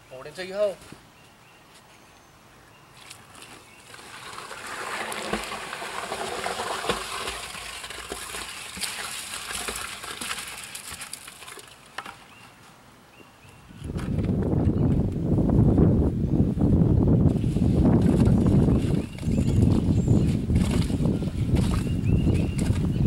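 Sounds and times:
wet concrete slopping from bucket: 3.9 - 12.2.

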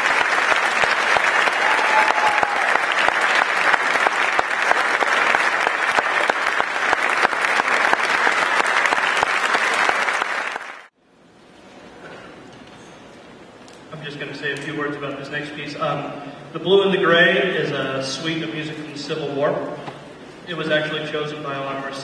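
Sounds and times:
audience applauding: 0.0 - 10.9
faint hall noise: 0.0 - 22.0.

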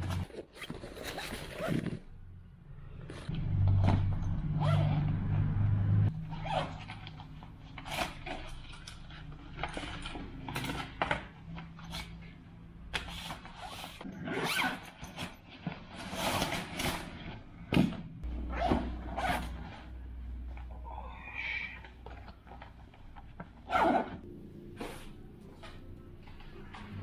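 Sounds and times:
zippers pulled open: 0.0 - 2.2, 13.1 - 15.4, 18.4 - 19.8, 23.6 - 24.2.

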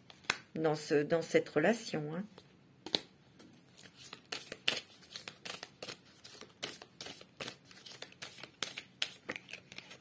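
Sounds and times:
cards being shuffled: 3.8 - 10.0.

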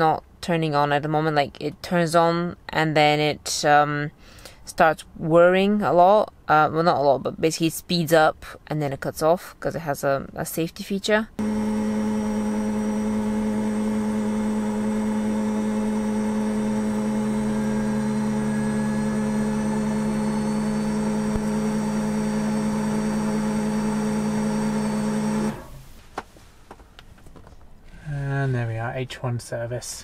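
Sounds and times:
heater whirring hum: 11.4 - 26.2.

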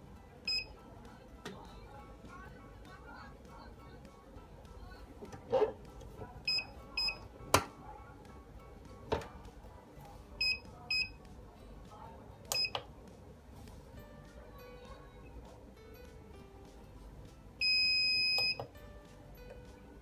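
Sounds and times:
short electronic beeps: 0.5 - 0.7, 6.5 - 7.2, 10.4 - 11.1, 17.6 - 18.6.

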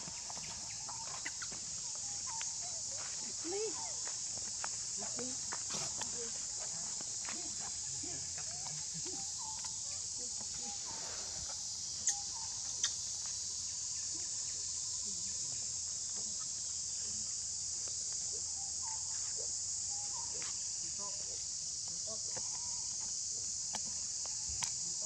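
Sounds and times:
faint chirping calls: 0.0 - 4.3, 7.3 - 21.4
insect chorus shrilling: 0.0 - 25.0.

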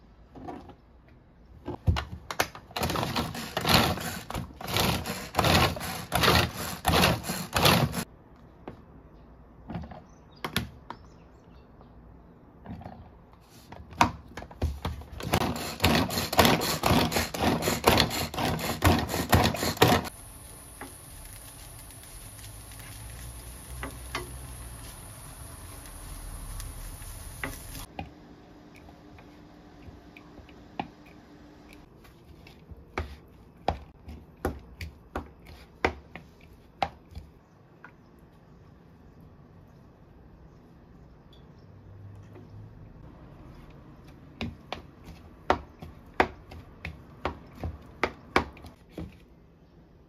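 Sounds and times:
spatula scraping plastic bowl: 2.8 - 8.0
food sizzling in a frying pan: 20.1 - 27.9.

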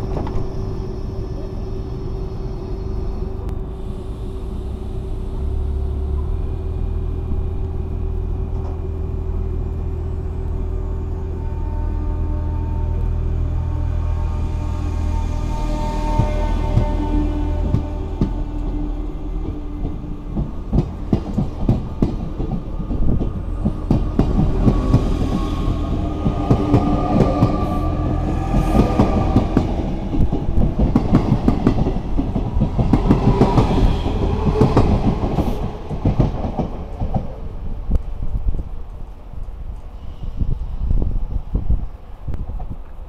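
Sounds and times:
steady train tones: 0.0 - 42.7
train wheels clacking on rails: 19.4 - 37.4.

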